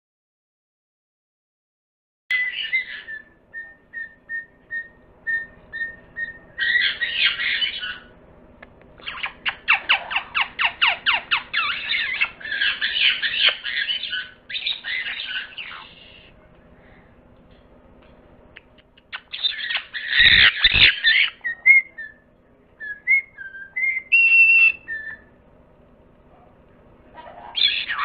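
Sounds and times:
parrots calling and screeching: 2.3 - 8.2, 9.0 - 16.3, 19.1 - 22.2, 22.8 - 25.3, 27.1 - 28.0.

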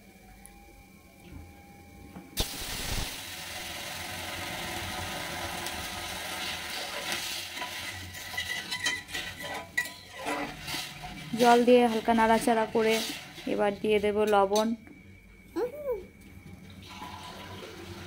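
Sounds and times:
water hissing in hot oil: 2.4 - 8.6
spatula scraping pan: 6.8 - 13.6.

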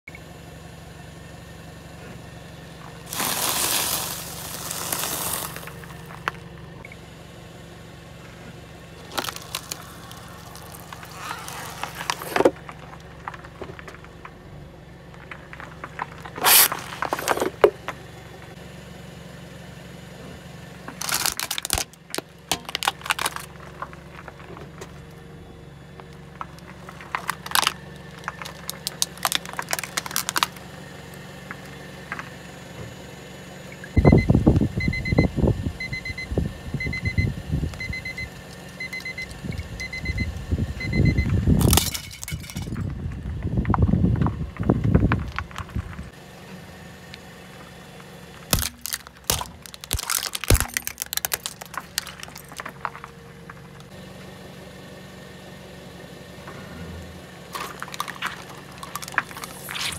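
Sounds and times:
tyre crushing objects: 3.0 - 6.4, 9.0 - 14.2, 15.2 - 17.9, 20.9 - 25.0, 26.5 - 30.6, 48.4 - 53.2, 57.5 - 59.9
plastic bottle bursting: 48.5 - 52.3.

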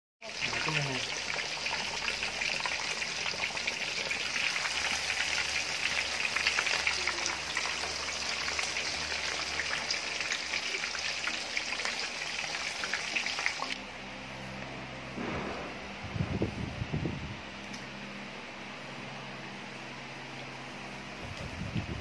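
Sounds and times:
hot oil sizzling and crackling: 0.2 - 13.8.

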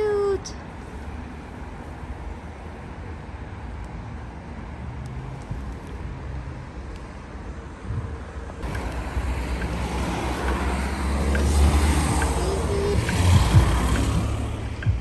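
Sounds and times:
distant traffic: 0.0 - 15.0
wind rumbling on microphone: 5.4 - 15.0.

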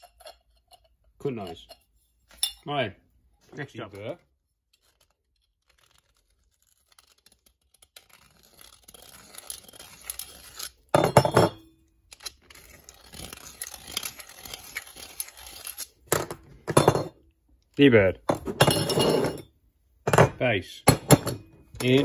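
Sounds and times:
blade scraping steel tube: 0.0 - 1.8, 4.7 - 10.9, 12.2 - 16.0.

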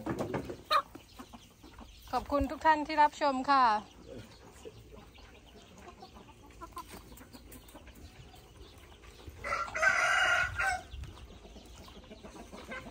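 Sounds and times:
chickens clucking: 0.0 - 12.9
rooster crowing: 9.4 - 10.9.

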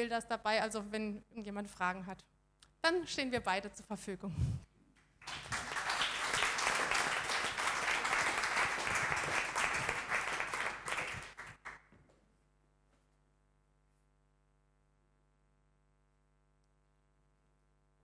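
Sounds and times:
audience applauding: 5.2 - 11.9.

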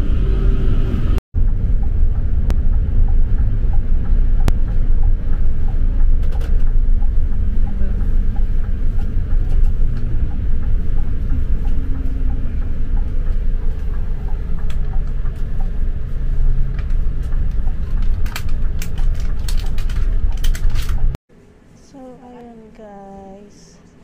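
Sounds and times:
bus engine and tyre rumble: 0.0 - 21.2
sharp clicks or rattles: 16.7 - 21.1.

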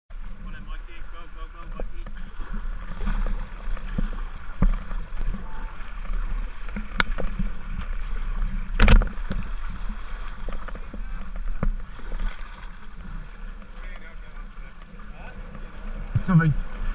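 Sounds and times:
water splashing against kayak: 0.1 - 16.9.

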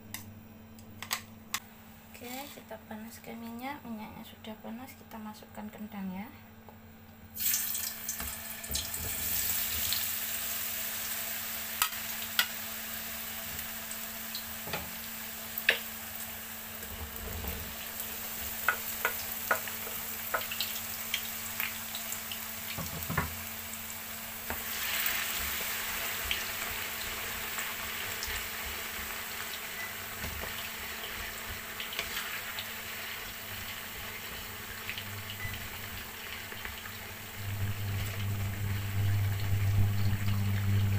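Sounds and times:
potatoes sizzling in hot oil: 7.4 - 40.9.

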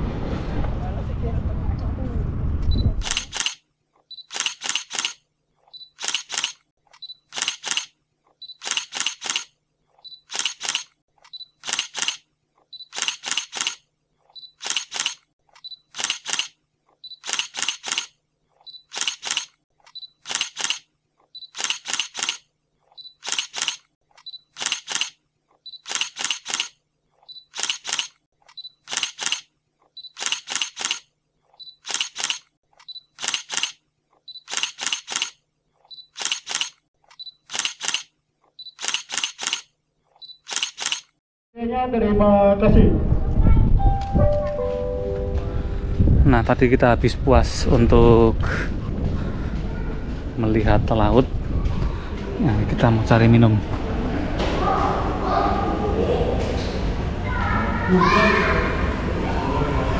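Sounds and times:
camera shutter clicks: 3.0 - 3.6, 4.2 - 5.2, 5.9 - 7.9, 8.5 - 9.5, 10.2 - 12.2, 12.8 - 13.8, 14.6 - 16.6, 17.2 - 18.1, 18.8 - 20.9, 21.5 - 22.4, 23.2 - 25.2, 25.8 - 26.8, 27.5 - 29.5, 30.1 - 31.1, 31.8 - 33.8, 34.4 - 35.4, 36.1 - 38.1, 38.7 - 39.7, 40.4 - 41.1.

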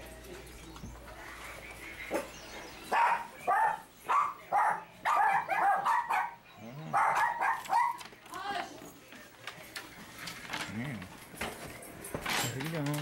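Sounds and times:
dog barking: 2.9 - 8.1.

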